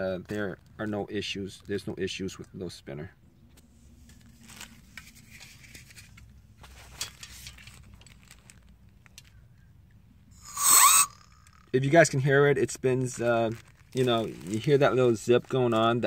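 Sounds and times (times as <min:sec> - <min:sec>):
plastic sheeting crinkling: 0:04.1 - 0:09.3, 0:12.9 - 0:16.0.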